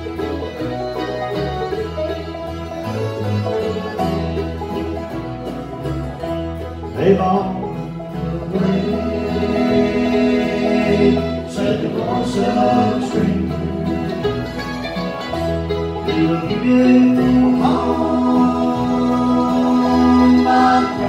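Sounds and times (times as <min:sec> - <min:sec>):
bluegrass band playing: 0:00.0 - 0:21.0
voices singing: 0:07.0 - 0:14.2, 0:16.0 - 0:21.0.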